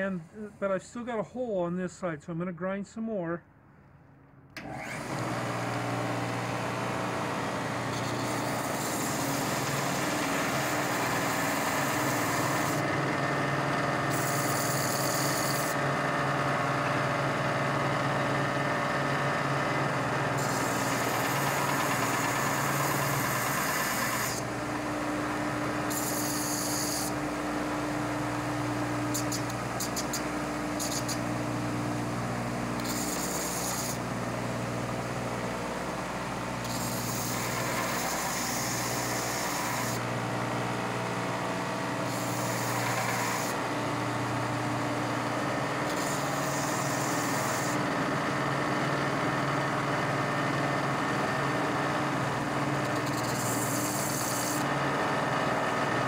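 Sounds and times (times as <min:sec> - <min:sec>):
belt sander running: 0:04.6 - 0:56.0
metal grinding on sanding belt: 0:07.9 - 0:12.9, 0:14.1 - 0:15.8, 0:20.4 - 0:24.4, 0:25.9 - 0:27.2, 0:29.1 - 0:31.2, 0:32.8 - 0:34.0, 0:36.6 - 0:40.0, 0:42.1 - 0:43.6, 0:45.8 - 0:47.8, 0:52.9 - 0:54.7.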